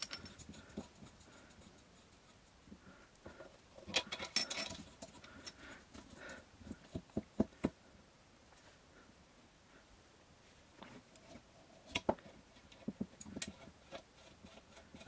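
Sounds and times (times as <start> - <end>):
light metallic clinks: 0.0 - 0.5, 3.9 - 5.6.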